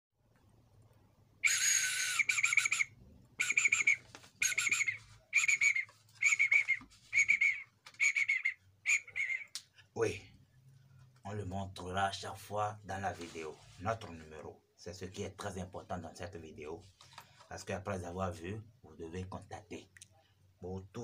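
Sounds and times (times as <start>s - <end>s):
high trilling bird-like whistling: 1.4s - 9.6s.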